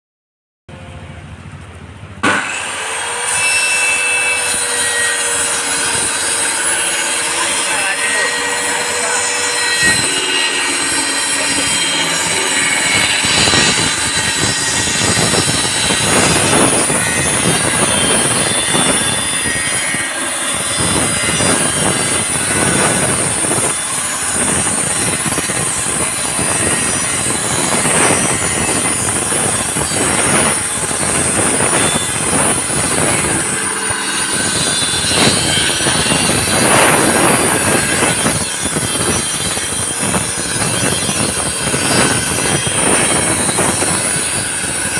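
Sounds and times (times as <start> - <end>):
circular saw cutting wood: 2.2 - 44.9.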